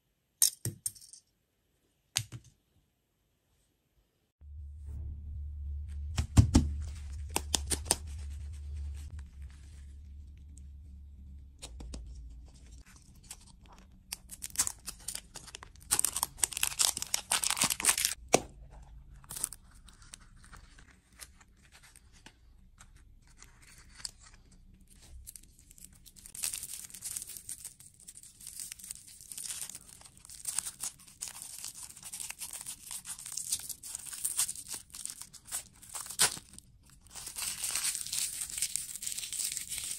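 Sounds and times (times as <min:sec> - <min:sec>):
candy wrappers tearing and crinkling: 0:12.8 - 0:18.2, 0:19.0 - 0:22.0, 0:23.3 - 0:39.9.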